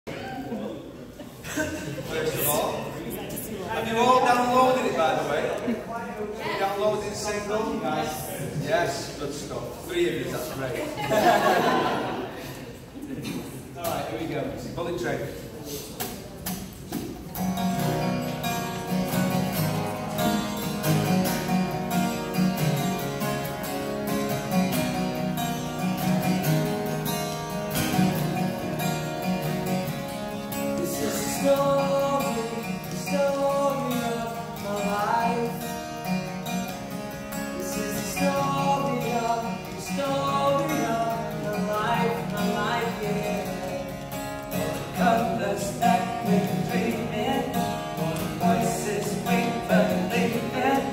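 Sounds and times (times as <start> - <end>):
acoustic guitars strumming: 1.4 - 5.8, 15.9 - 50.9
men singing: 30.8 - 35.6, 37.6 - 44.0, 44.6 - 50.9.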